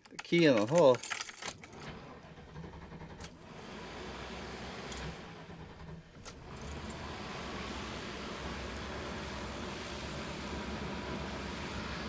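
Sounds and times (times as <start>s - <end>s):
keys jangling: 0.0s - 1.9s
engine starting and running: 0.4s - 12.0s.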